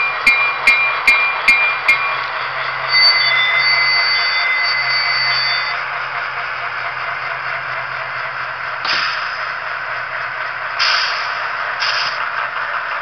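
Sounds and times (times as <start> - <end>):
model train multi-note horn: 2.9 - 5.7
model diesel engine running: 5.7 - 13.0.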